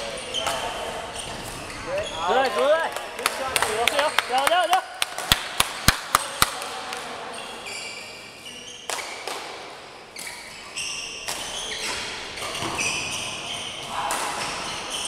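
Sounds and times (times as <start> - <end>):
shoes squeaking on sports floor: 0.0 - 2.8, 3.7 - 4.5, 7.3 - 15.0.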